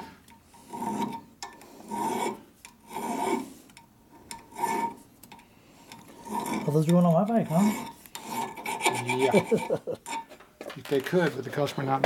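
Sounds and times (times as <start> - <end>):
file rasping across metal: 0.6 - 3.7, 4.4 - 5.0, 5.9 - 10.3.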